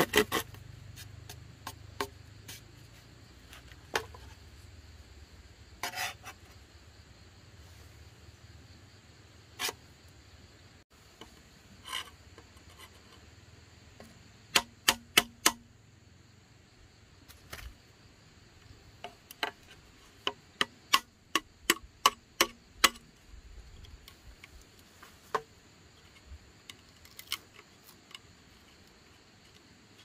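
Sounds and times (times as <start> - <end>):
hand tool knocking on bamboo: 1.2 - 2.6, 14.0 - 15.6, 19.0 - 23.1.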